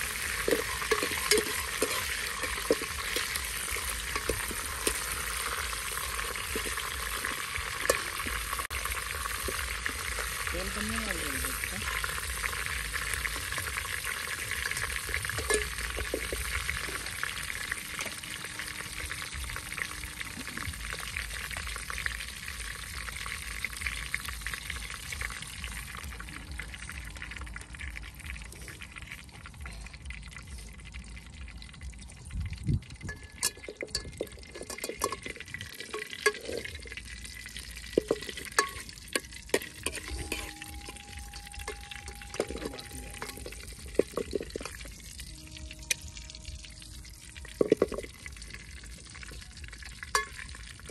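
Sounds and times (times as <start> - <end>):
metal ladle scraping pot: 0.0 - 10.5, 11.4 - 21.6, 33.1 - 49.0
food sizzling in oil: 0.0 - 50.9.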